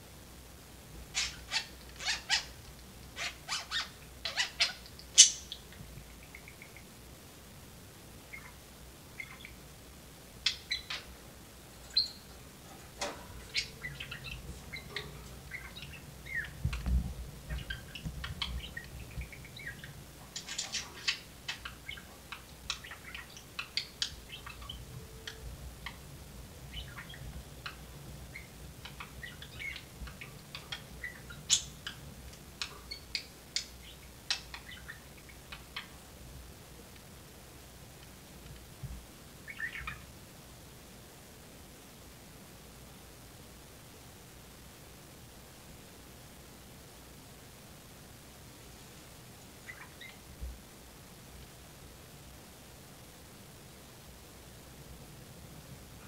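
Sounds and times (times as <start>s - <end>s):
budgerigars chirping and squeaking: 1.1s - 2.6s, 3.2s - 6.8s, 8.3s - 8.6s, 9.2s - 9.6s, 10.4s - 11.1s, 11.9s - 12.4s, 13.0s - 16.9s, 17.5s - 26.0s, 26.7s - 35.9s, 39.5s - 40.0s, 49.6s - 50.2s.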